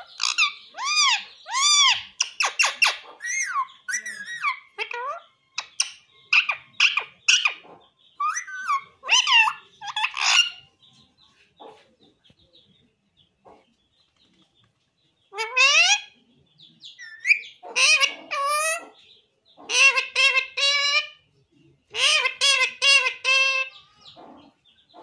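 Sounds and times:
parakeet squawking calls: 0:00.0 - 0:10.7, 0:15.3 - 0:16.2, 0:17.0 - 0:19.0, 0:19.6 - 0:21.2, 0:21.9 - 0:25.0.

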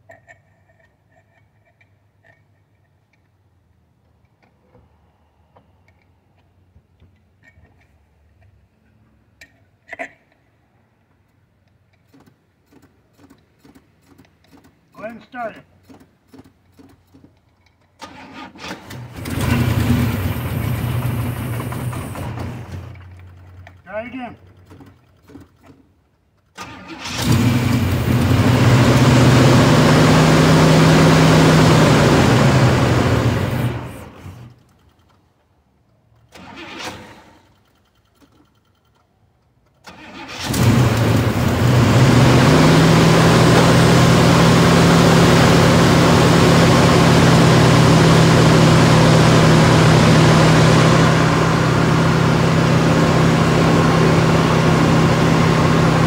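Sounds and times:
car engine cranking and starting: 0:15.8 - 0:35.3, 0:36.1 - 0:56.0.

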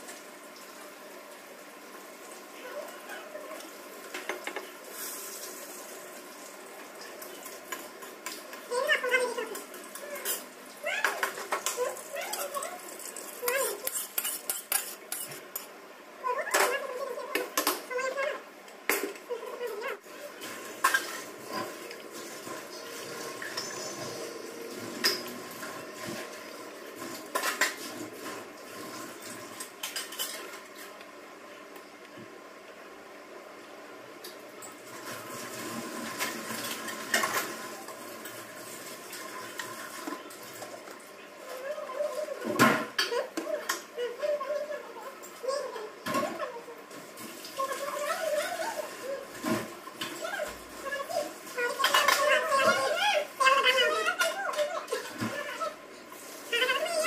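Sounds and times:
dishes and utensils clattering: 0:09.5 - 0:15.8, 0:20.4 - 0:26.4, 0:27.0 - 0:28.4, 0:29.6 - 0:31.0, 0:36.0 - 0:38.4, 0:51.6 - 0:53.0
high vocal squeaks: 0:50.2 - 0:55.8.

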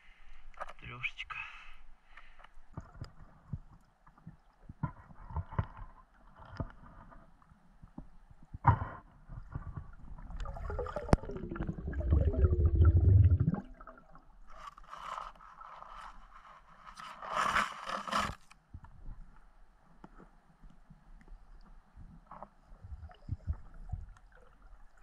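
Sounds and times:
gurgling rush of water: 0:10.4 - 0:14.0.

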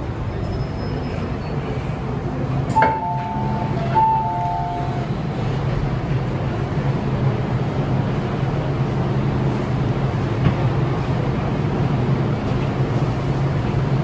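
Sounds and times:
low hum of stopped train: 0:00.0 - 0:14.0
two-note high-low door chime: 0:02.8 - 0:05.0.

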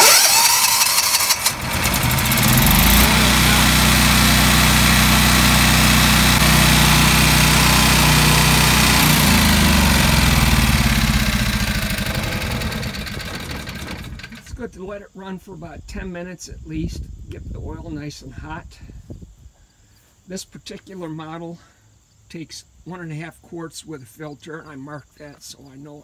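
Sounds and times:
generator engine running: 0:00.0 - 0:14.5.

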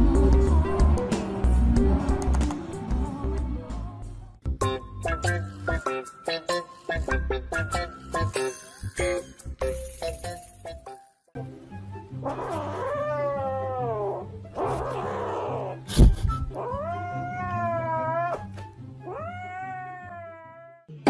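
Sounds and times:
background music: 0:00.0 - 0:21.0
cat yowling: 0:12.2 - 0:15.8, 0:16.6 - 0:20.9.

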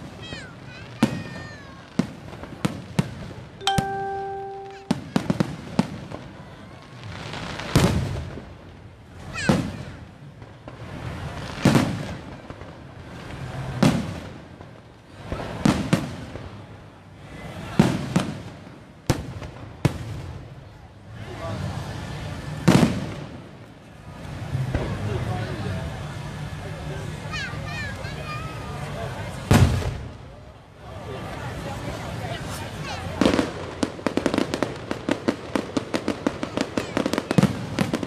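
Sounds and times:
fireworks bursting: 0:00.0 - 0:23.6, 0:32.7 - 0:38.0
steady single-pitched tone: 0:03.6 - 0:05.0.

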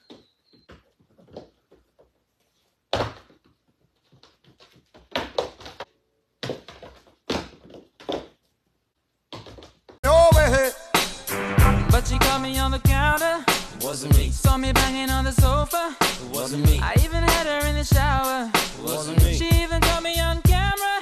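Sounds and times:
hooves thunking on wooden floor: 0:00.0 - 0:02.3, 0:02.9 - 0:08.5, 0:09.3 - 0:10.0
music with a beat: 0:10.0 - 0:21.0.

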